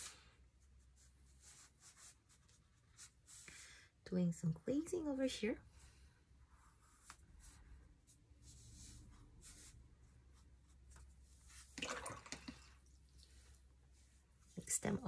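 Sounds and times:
brush swishing on paper: 0.0 - 3.6, 6.5 - 11.8, 13.2 - 15.0.

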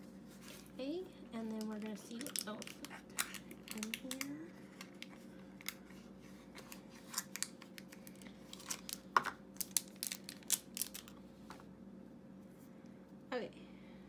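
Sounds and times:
plastic and paper crinkling: 1.4 - 11.2.

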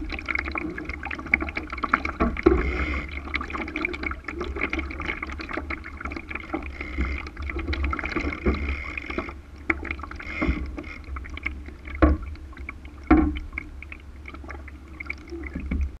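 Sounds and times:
water slapping against hull: 0.0 - 16.0
small knocks: 12.0 - 12.3, 13.1 - 13.6.

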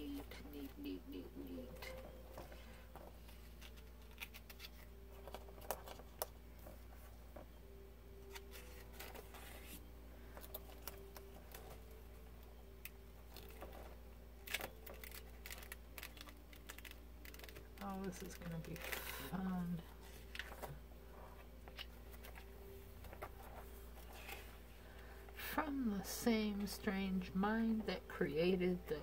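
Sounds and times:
faint low hum: 0.0 - 29.0
paper pages rustling: 2.3 - 7.1, 8.3 - 11.9, 13.2 - 25.0.

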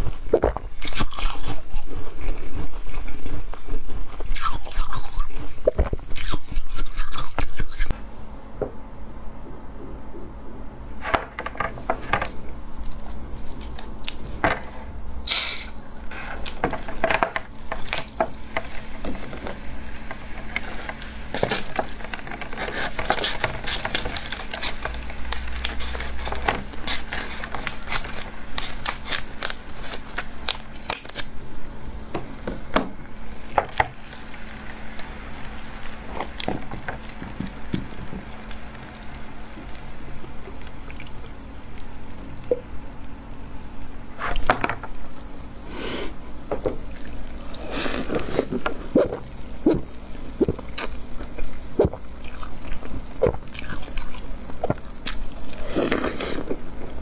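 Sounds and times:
plastic crinkling: 16.4 - 31.4
cola slush fizzing and crackling: 17.6 - 31.3, 33.0 - 57.0.

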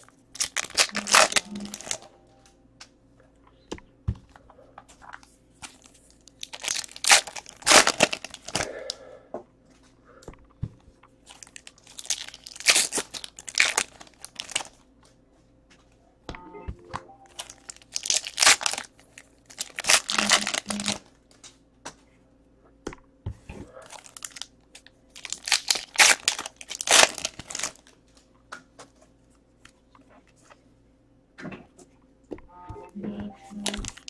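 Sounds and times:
card pack wrappers crinkling and tearing: 0.0 - 2.1, 4.9 - 9.0, 11.2 - 14.9, 17.3 - 21.5, 23.8 - 28.3, 33.5 - 34.0.

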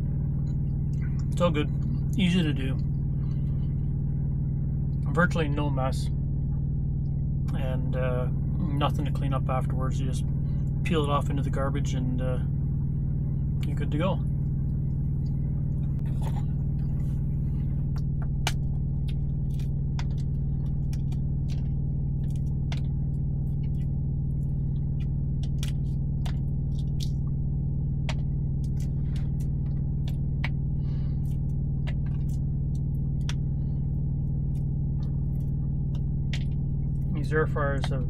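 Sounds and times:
steady low drone: 0.0 - 38.0.

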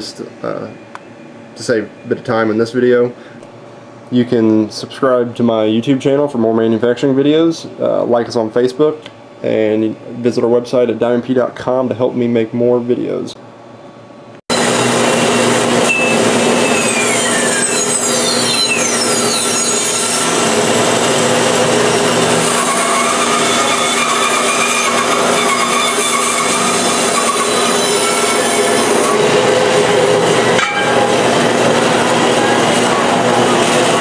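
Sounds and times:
band saw cutting metal: 14.5 - 34.0.

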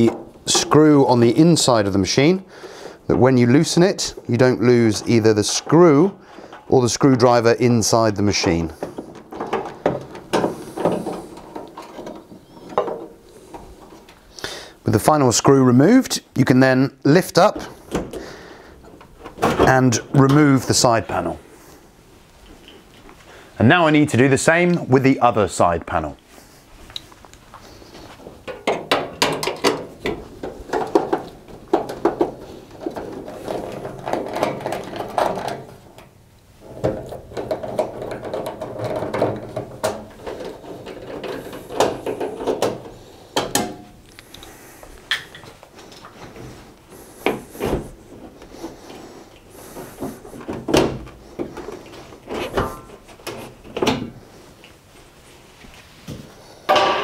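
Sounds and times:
screwdriver and screws rattling on metal: 36.7 - 43.7.

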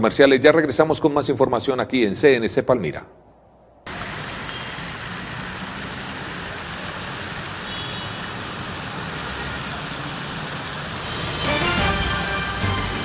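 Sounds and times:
steady rushing outdoor noise: 3.8 - 13.0.

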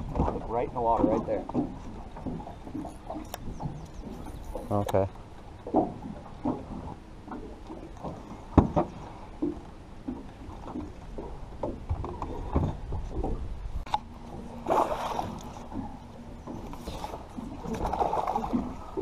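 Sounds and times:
water lapping against boat hull: 0.0 - 19.0
knocks on boat: 5.7 - 13.5.

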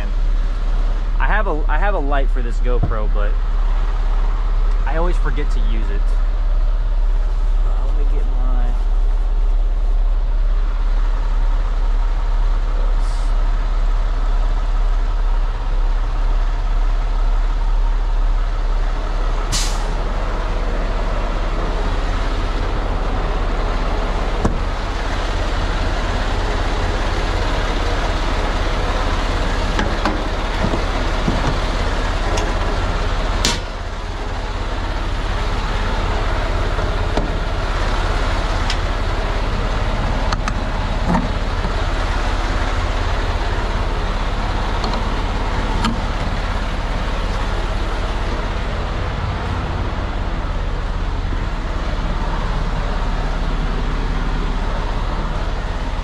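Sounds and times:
diesel truck engine idling: 0.0 - 56.0
sharp air hisses: 19.5 - 20.0.

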